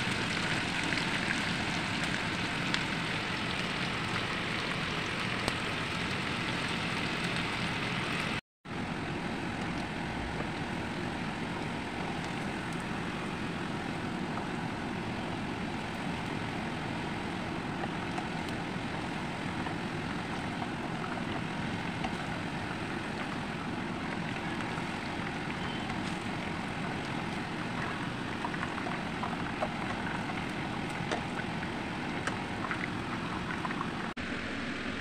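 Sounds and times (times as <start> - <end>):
wings sizzling in hot oil: 0.0 - 8.4.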